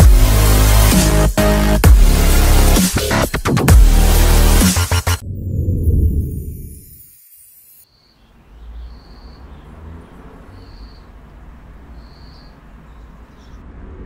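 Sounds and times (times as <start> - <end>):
music: 0.0 - 5.2.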